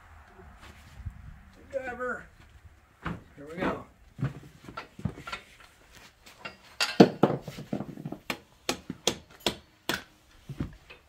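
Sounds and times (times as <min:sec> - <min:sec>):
hammer striking metal: 0:08.3 - 0:10.1.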